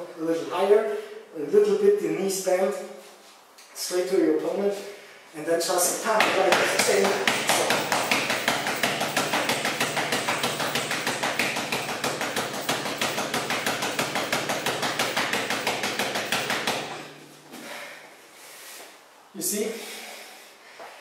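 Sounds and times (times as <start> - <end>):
punches thudding on punching bag: 6.2 - 17.3.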